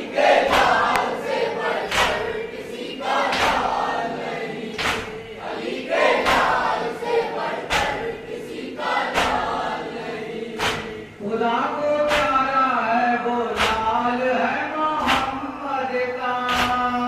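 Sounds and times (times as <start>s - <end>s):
men chanting together: 0.0s - 17.0s
hands slapping chests: 0.4s - 2.3s, 4.7s - 5.2s, 7.7s - 8.1s, 9.1s - 9.6s, 10.6s - 11.0s, 12.1s - 12.4s, 13.6s - 13.9s.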